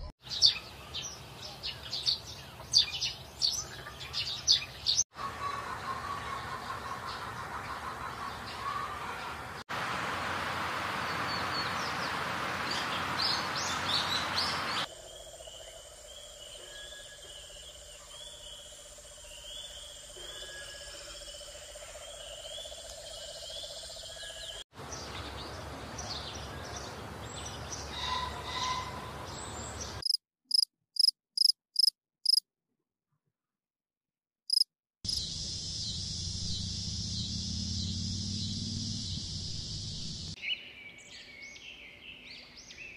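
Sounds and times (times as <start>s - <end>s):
high insect buzz: 30.0s - 32.4s, 34.5s - 40.3s
sharp insect chirps: 30.0s - 32.4s, 34.5s - 40.3s
bird chirps: 34.5s - 42.9s.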